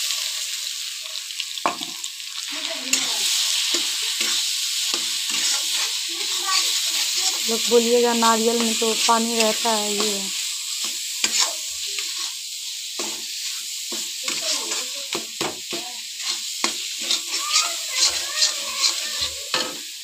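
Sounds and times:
coconut sizzling in a wok: 0:00.0 - 0:20.0
metal spatula scraping a pan: 0:02.9 - 0:20.0.

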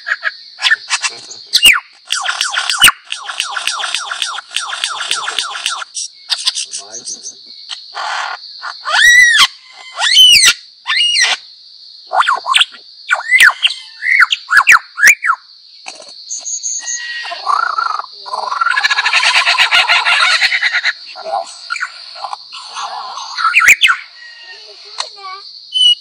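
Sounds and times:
lyrebird singing: 0:00.0 - 0:26.0.

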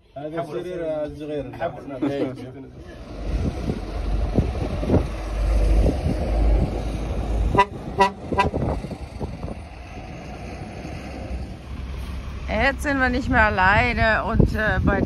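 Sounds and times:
vehicle horn toots: 0:07.5 - 0:08.8.

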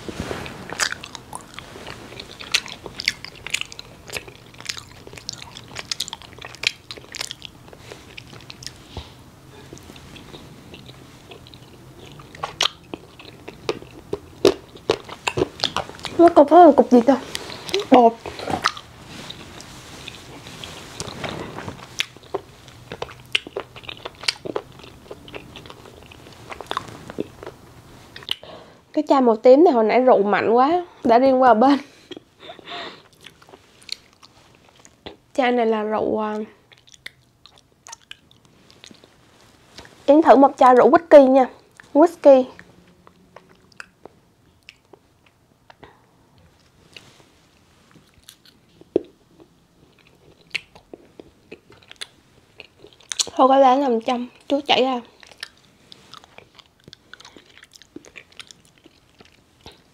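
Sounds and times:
mouth chewing clicks and smacks: 0:00.7 - 0:08.9, 0:09.7 - 0:16.2, 0:21.8 - 0:27.6, 0:28.2 - 0:28.5, 0:32.0 - 0:32.3, 0:36.6 - 0:39.1, 0:42.6 - 0:47.1, 0:47.9 - 0:53.4, 0:54.1 - 0:59.9.

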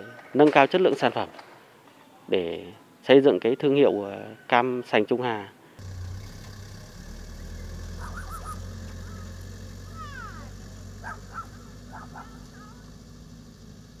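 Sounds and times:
truck engine humming: 0:05.8 - 0:14.0
bird calls: 0:05.9 - 0:13.7.

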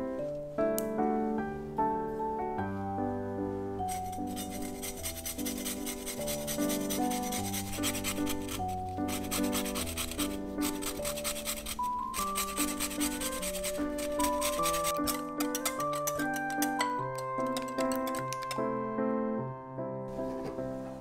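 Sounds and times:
waltz music: 0:00.0 - 0:21.0
lemon rind rasping on grater: 0:03.9 - 0:18.2.

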